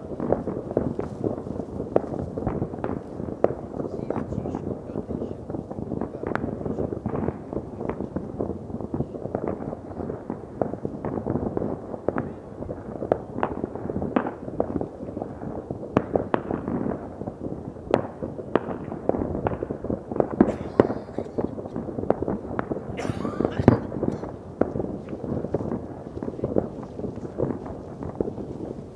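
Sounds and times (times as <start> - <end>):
distant fireworks rumbling: 0.0 - 28.9
sharp firecracker cracks: 17.9 - 28.9.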